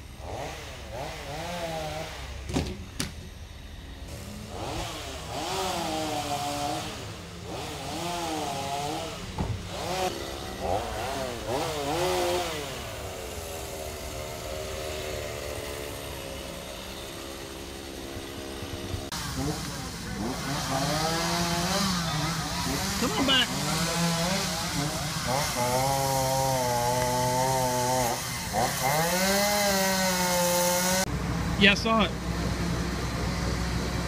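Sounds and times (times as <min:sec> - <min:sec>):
chainsaw engine revving: 0:00.0 - 0:02.5, 0:04.0 - 0:31.1.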